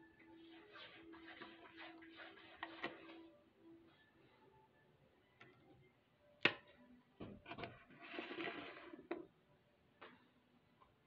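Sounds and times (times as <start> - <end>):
objects scraping across wood: 7.6 - 9.2.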